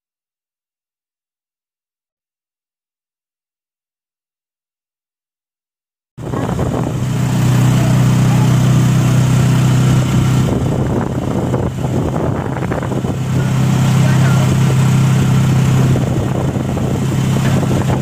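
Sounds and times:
road and wind noise: 6.2s - 18.0s
vehicle engine humming: 6.2s - 18.0s.

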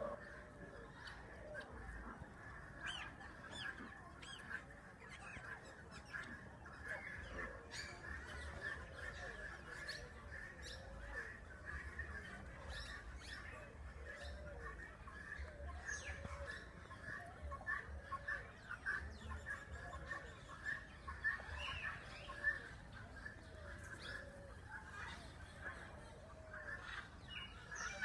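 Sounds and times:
background chatter of many birds: 0.0s - 28.0s.

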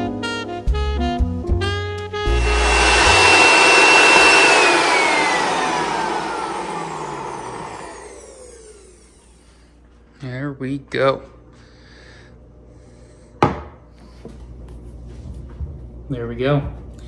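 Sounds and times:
blender motor whining: 2.3s - 9.4s.

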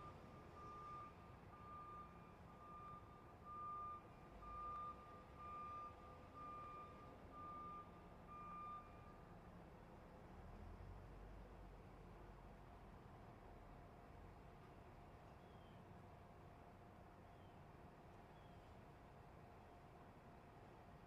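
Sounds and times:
truck reversing alarm beeping: 0.0s - 9.4s.

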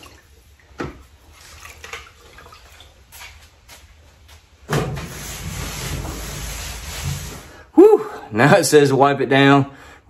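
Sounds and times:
rag scrubbing aluminum hull: 4.7s - 7.7s.

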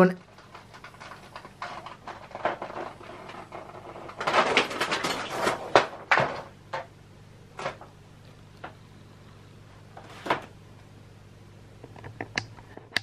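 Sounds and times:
scraping and rustling: 0.2s - 6.9s, 9.9s - 10.5s.

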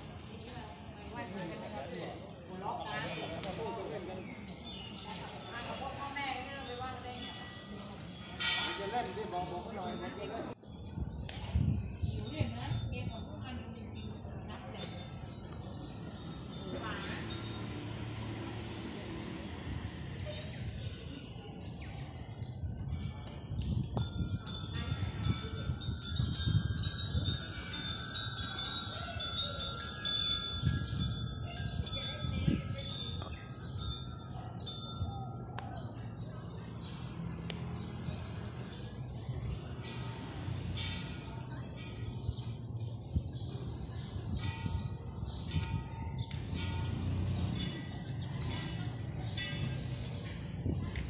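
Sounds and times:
metal bells chiming: 4.4s - 10.6s, 12.0s - 19.0s, 23.8s - 37.0s, 37.7s - 50.8s.

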